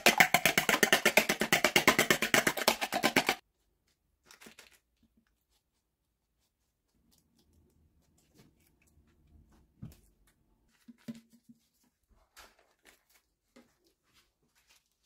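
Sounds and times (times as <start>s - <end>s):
pastry brush tapping: 0.0s - 3.4s
baking paper rustling: 10.0s - 15.0s.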